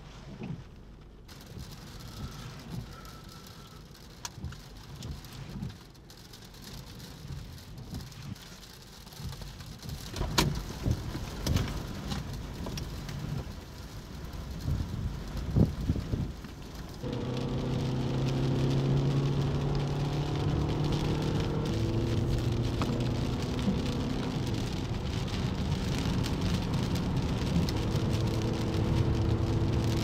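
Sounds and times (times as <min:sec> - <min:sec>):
rain: 0:00.0 - 0:30.0
low rumble: 0:14.3 - 0:30.0.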